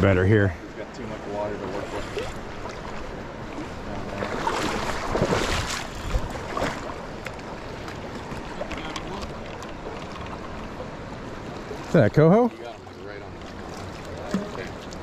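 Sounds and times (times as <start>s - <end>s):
river water running: 0.0s - 15.0s
fish splashing in water: 4.1s - 7.2s.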